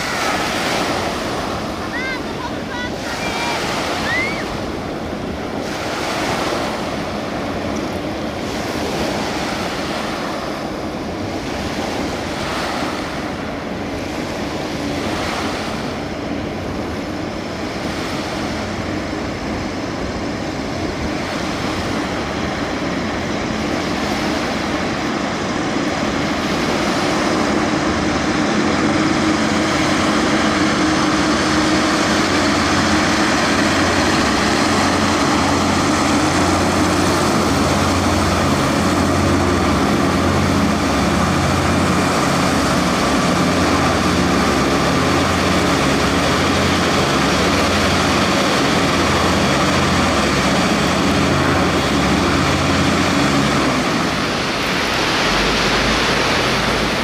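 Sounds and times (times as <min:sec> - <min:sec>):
hovercraft engines droning: 0:00.0 - 0:57.0
small waves on shingle: 0:29.4 - 0:57.0.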